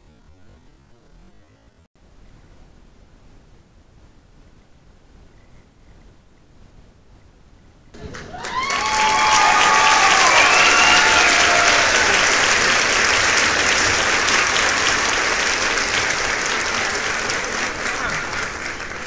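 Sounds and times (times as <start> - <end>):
rising whoops: 8.0 - 15.4
crowd applause and cheering: 8.0 - 19.0.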